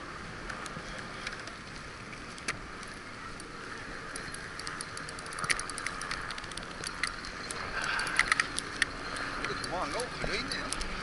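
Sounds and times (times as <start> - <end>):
sea and wind noise: 0.0 - 11.0
sharp clicks and ticks: 2.3 - 11.0.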